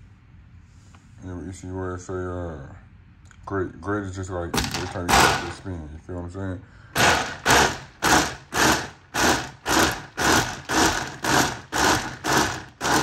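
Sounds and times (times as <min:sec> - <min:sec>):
blender pulsing: 0:07.0 - 0:13.0.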